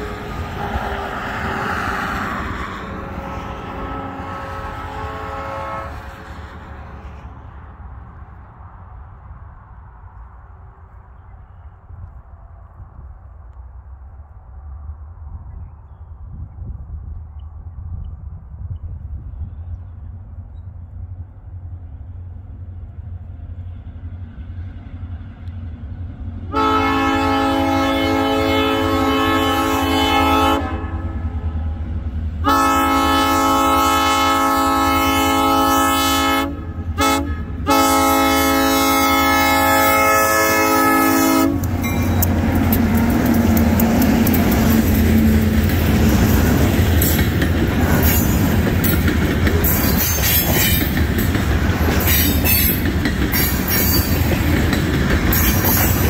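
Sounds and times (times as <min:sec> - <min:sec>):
locomotive air horn blasts: 0:00.0 - 0:01.6, 0:02.9 - 0:06.5, 0:26.5 - 0:31.5, 0:32.4 - 0:42.8
locomotive rumbling: 0:00.0 - 0:56.0
train wheels clicking over rail joints: 0:41.5 - 0:56.0.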